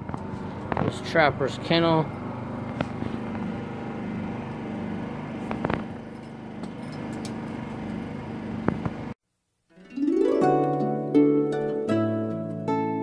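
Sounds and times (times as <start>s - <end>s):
generator engine humming: 0.0s - 9.2s.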